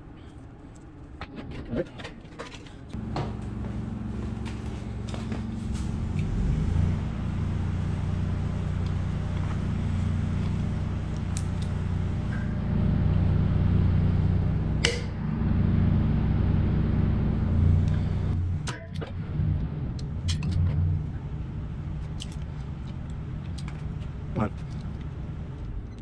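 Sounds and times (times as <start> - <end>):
low engine drone: 0.0 - 26.0.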